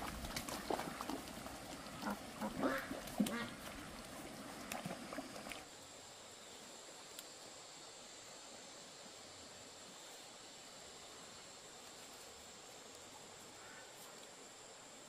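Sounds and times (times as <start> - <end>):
faint steady hiss: 0.0 - 15.0
ducks quacking: 1.8 - 3.9.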